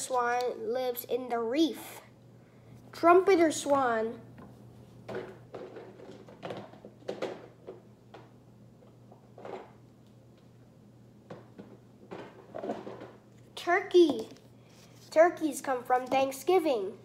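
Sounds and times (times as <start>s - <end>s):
steady low hum: 0.0s - 17.0s
plastic toys knocking together: 5.1s - 8.3s, 11.3s - 13.2s.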